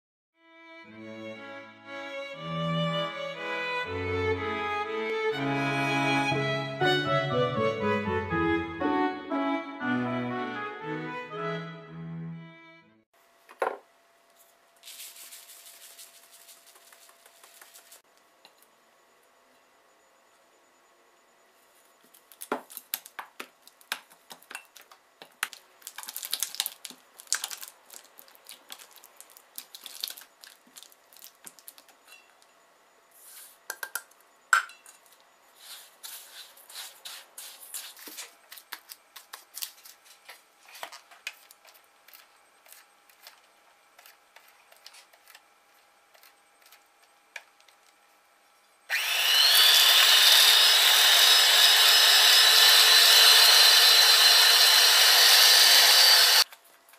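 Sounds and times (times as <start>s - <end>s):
electric hand mixer whirring: 48.9s - 56.5s.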